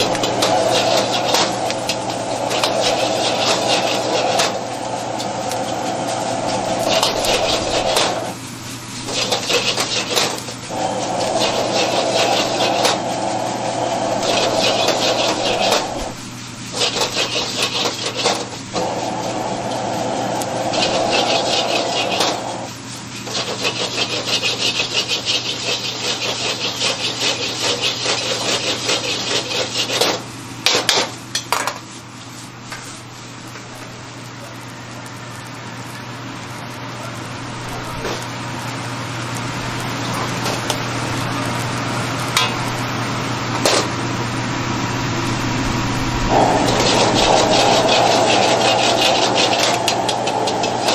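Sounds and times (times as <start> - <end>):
metal ladle scraping a wok: 0.0 - 4.7, 6.4 - 8.4, 9.0 - 13.4, 14.1 - 19.1, 20.6 - 30.1, 46.3 - 50.9
low hum: 44.1 - 50.9.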